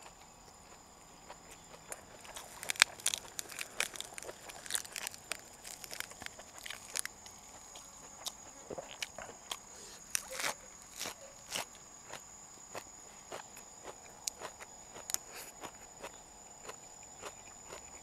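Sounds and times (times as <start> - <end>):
wet chewing and lip smacks: 1.3 - 18.0
biting into lettuce wrap: 1.6 - 11.7
lettuce leaves crackling: 2.3 - 7.3.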